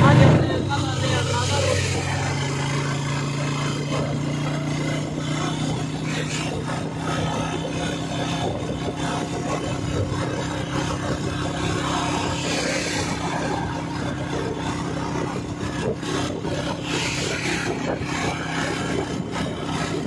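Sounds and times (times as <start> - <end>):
road and wind noise: 0.0 - 20.0
vehicle engine cruising: 0.0 - 20.0.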